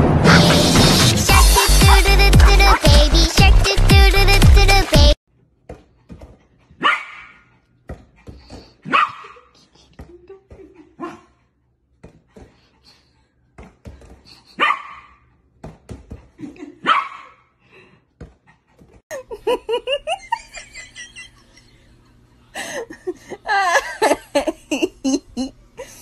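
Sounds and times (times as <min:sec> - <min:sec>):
people laughing: 0:01.3 - 0:04.3, 0:19.1 - 0:26.0
puppy yapping: 0:06.8 - 0:07.5, 0:08.8 - 0:09.4, 0:14.6 - 0:15.2.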